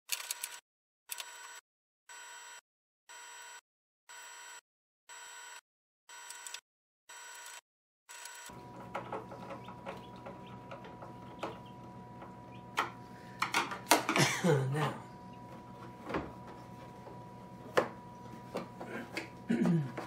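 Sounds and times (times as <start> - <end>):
faint steady hum: 8.6 - 20.0.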